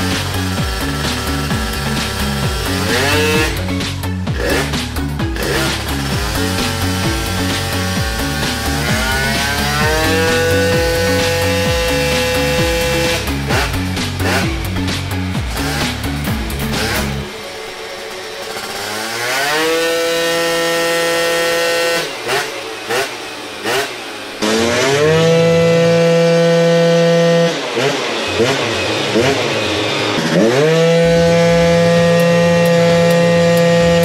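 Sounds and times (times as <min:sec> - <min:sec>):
scooter engine revving: 0:00.0 - 0:34.0.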